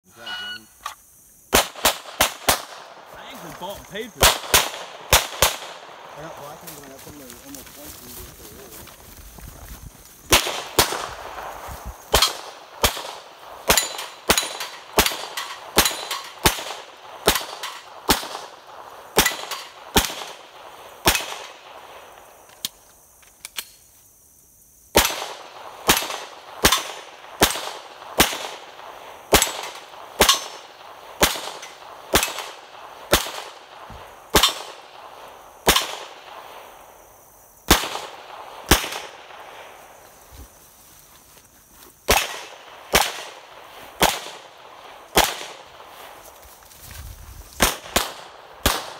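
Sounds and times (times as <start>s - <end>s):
pistol shots: 1.5s - 2.9s, 4.2s - 6.2s, 10.3s - 11.4s, 12.1s - 18.6s, 19.2s - 21.6s, 25.0s - 36.4s, 37.7s - 39.4s, 42.1s - 45.8s, 47.6s - 48.9s.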